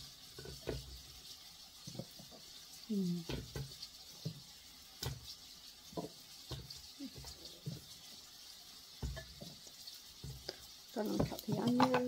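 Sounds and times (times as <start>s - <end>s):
potato pieces thudding into pot: 3.2s - 4.4s, 5.9s - 7.9s, 9.0s - 9.6s, 10.2s - 12.0s.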